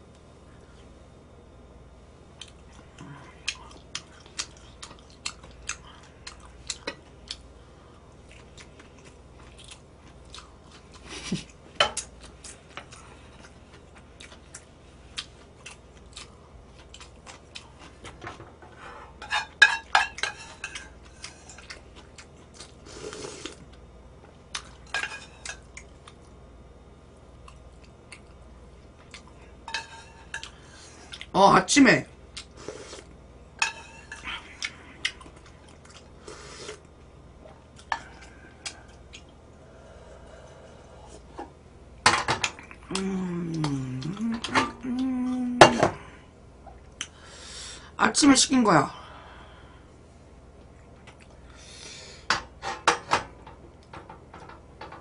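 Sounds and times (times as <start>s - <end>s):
chewing: 2.4s - 18.2s, 20.2s - 23.8s, 27.3s - 29.6s, 34.1s - 39.4s, 50.6s - 51.6s
dishes clattering: 19.2s - 20.9s, 52.3s - 55.0s.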